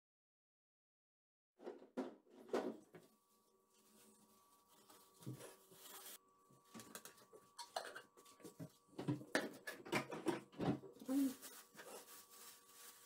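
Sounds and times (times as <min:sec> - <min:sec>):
kitchenware clinking: 0:06.7 - 0:10.7.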